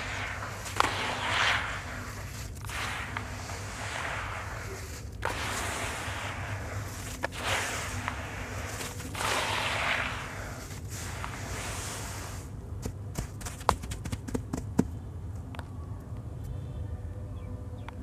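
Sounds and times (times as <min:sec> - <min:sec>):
sharp crack: 0:00.0 - 0:10.4
gritty sand-cement crumbling: 0:00.0 - 0:14.8.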